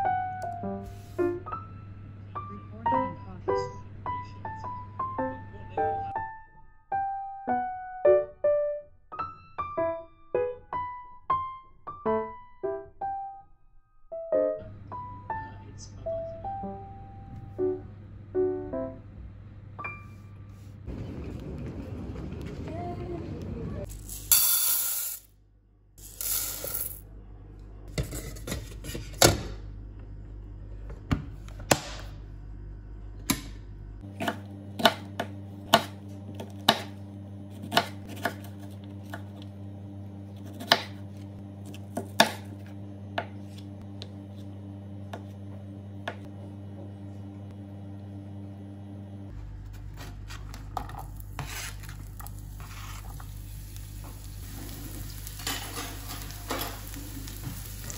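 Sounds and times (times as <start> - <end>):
knife chopping on cutting board: 34.1 - 39.4, 40.4 - 43.6
diced onion sliding into pan: 51.2 - 57.9.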